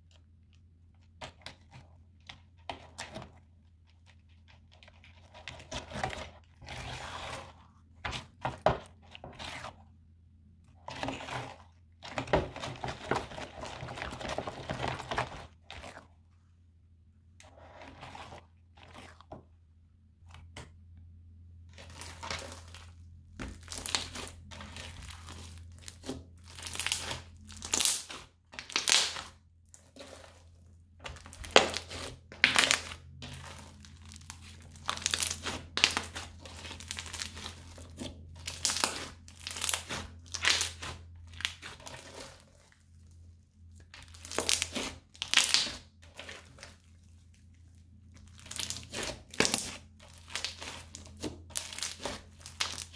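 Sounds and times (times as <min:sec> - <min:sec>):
crunchy slime crackling: 0:21.7 - 0:52.9.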